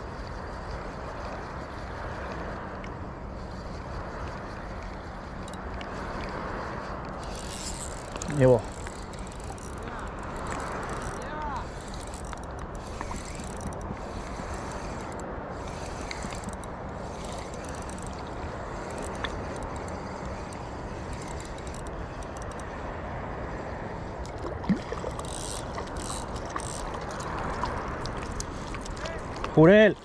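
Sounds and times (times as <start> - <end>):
fishing reel being cranked: 5.2 - 5.7, 7.1 - 22.8, 25.0 - 30.0.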